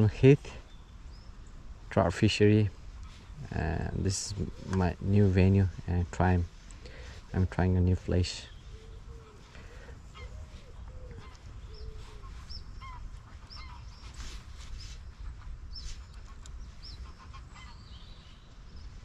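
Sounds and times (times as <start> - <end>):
steady low rumble: 0.0 - 19.0
birds calling in high notes: 8.4 - 19.0.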